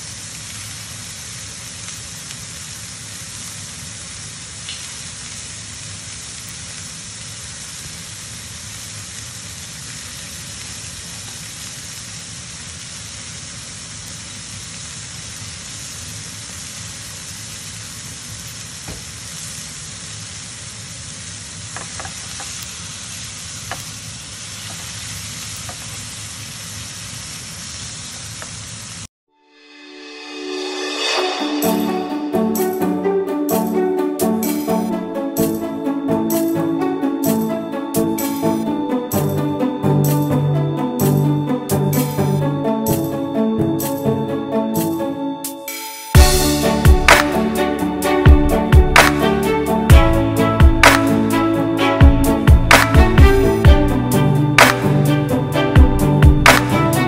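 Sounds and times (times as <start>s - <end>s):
steak sizzling in a frying pan: 0.0s - 29.0s.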